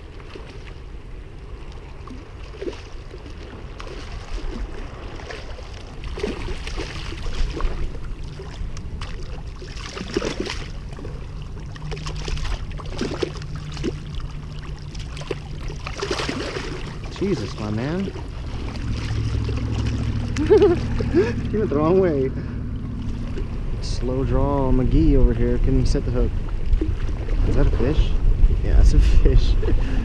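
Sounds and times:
wind on microphone: 0.0 - 30.0
water splashing on rocks: 2.5 - 10.9, 11.6 - 21.1.

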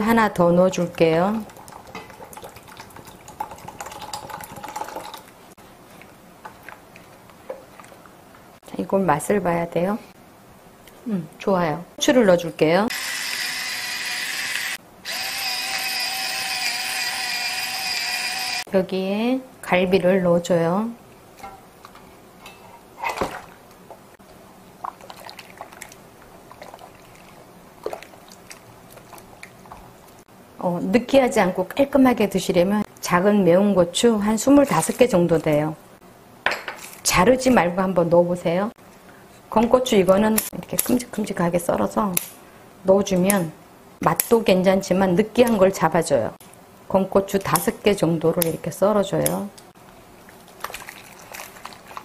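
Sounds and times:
spatula stirring liquid: 1.3 - 8.2, 24.7 - 30.3, 50.2 - 52.0
juice pouring into a bowl: 1.4 - 5.4, 50.5 - 52.0
wet squelching and sloshing: 1.4 - 8.4, 21.4 - 30.3, 50.2 - 52.0.

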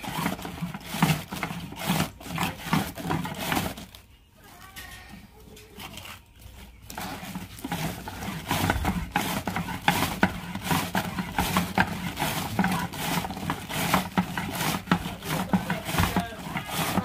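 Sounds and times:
cabbage shredding scrape: 0.0 - 4.0, 5.7 - 17.0.

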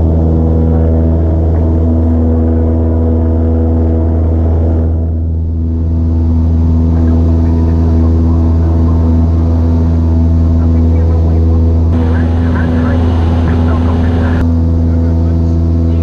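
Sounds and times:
aircraft engine and propeller: 0.0 - 16.0.

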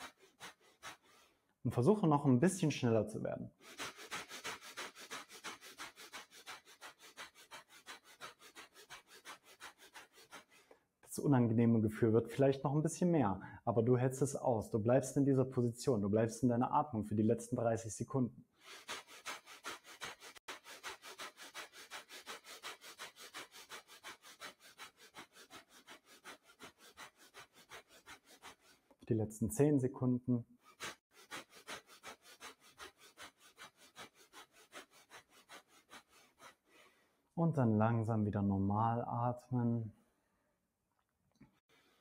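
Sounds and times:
rapid forceful nose breathing: 0.0 - 1.4, 3.5 - 10.8, 18.6 - 29.0, 30.6 - 37.2.

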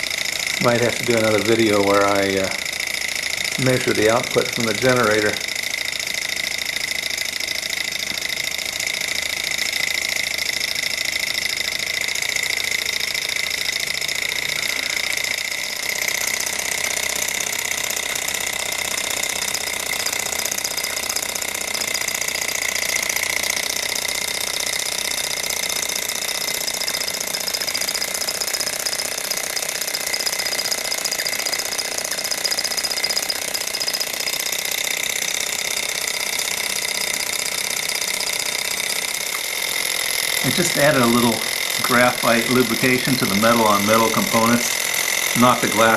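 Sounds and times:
engine mechanical rattle: 0.0 - 45.9.

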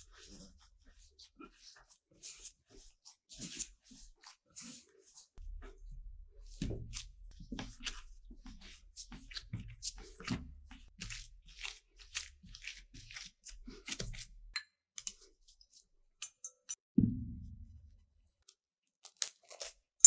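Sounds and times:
dough being kneaded by hand: 0.0 - 14.4.

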